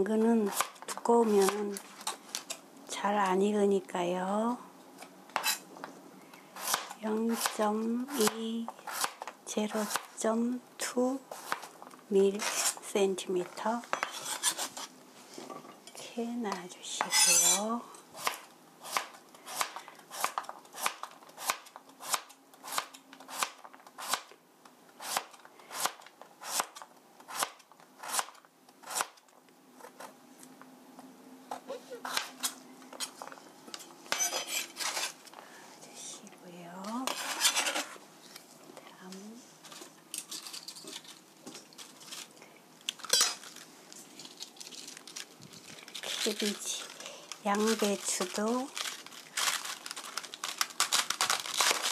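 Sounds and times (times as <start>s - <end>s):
knife scraping cutting board: 5.4s - 5.6s, 12.4s - 12.8s, 13.9s - 15.4s, 17.0s - 19.0s, 33.8s - 35.2s, 37.0s - 38.0s.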